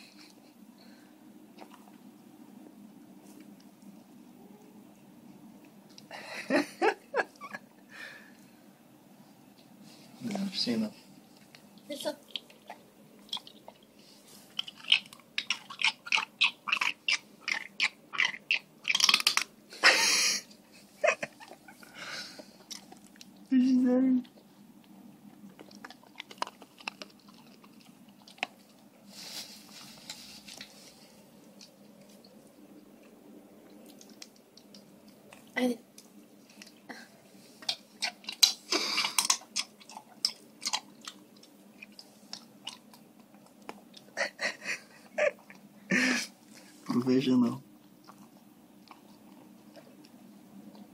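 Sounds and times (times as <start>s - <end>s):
dog crunching nut shells: 14.5s - 19.6s, 25.3s - 28.9s, 37.6s - 44.1s.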